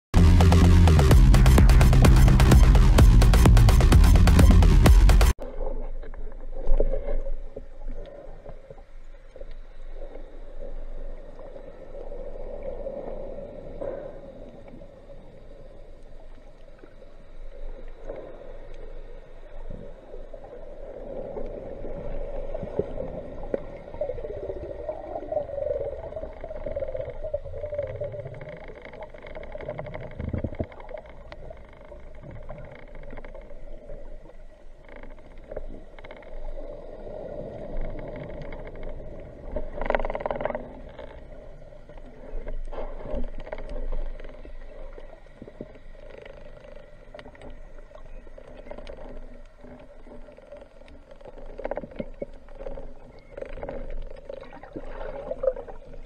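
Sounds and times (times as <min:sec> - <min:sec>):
steady hum: 0:00.2 - 0:05.4
underwater water noise: 0:04.8 - 0:56.0.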